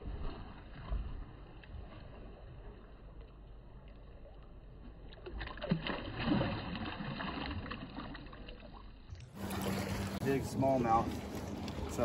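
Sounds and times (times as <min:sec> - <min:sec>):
water lapping: 0:00.0 - 0:12.0
fish splashing in water: 0:05.0 - 0:10.2.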